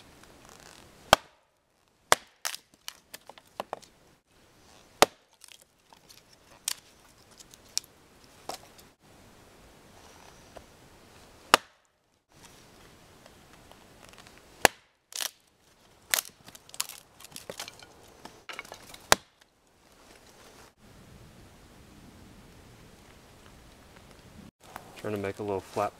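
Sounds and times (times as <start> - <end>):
axe striking wood: 1.1 - 1.5, 2.1 - 2.7, 5.0 - 5.6, 11.5 - 11.8, 14.6 - 15.4, 18.5 - 19.4
wood cracking and splintering: 2.1 - 3.9, 4.8 - 8.8, 14.0 - 19.5.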